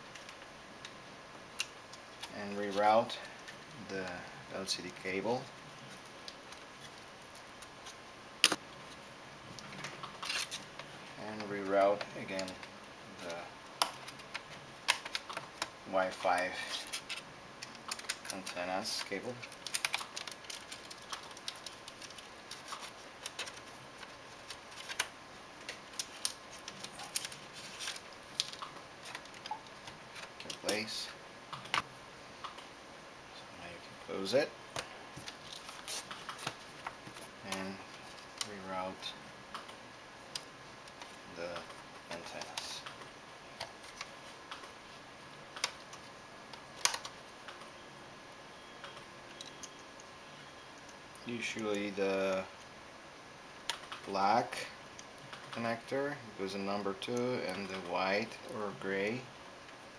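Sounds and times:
plastic laptop parts clicking: 0:13.6 - 0:15.8, 0:16.8 - 0:30.8, 0:45.5 - 0:47.7.

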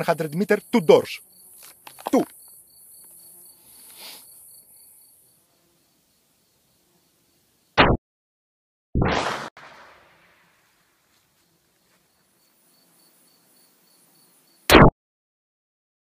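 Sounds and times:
insects chirping: 0:00.0 - 0:07.8, 0:11.1 - 0:14.7
shotgun shots: 0:09.0 - 0:10.3.

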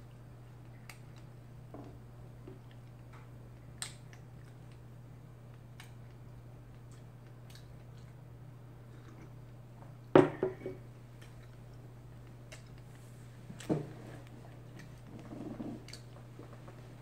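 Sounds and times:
low steady hum: 0:00.0 - 0:17.0
ceramic mug knocking on wooden table: 0:10.2 - 0:10.8.

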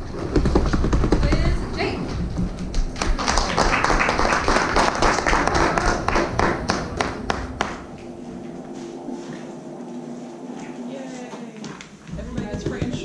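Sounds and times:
hands drumming on desks: 0:00.2 - 0:01.6, 0:12.1 - 0:13.0.

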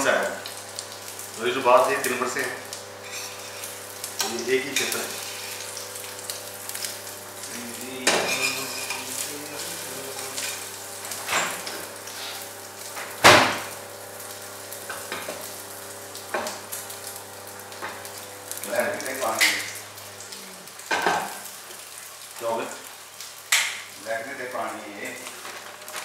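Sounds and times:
omelette sizzling in a frying pan: 0:00.0 - 0:26.0
metal utensil scraping a pan: 0:03.0 - 0:05.6, 0:08.2 - 0:09.1.

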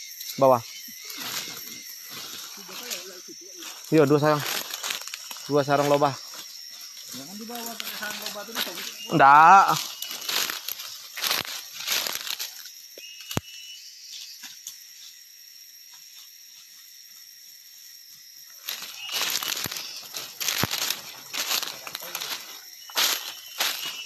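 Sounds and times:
footsteps crunching through dry leaves: 0:00.9 - 0:12.8, 0:18.5 - 0:24.0.

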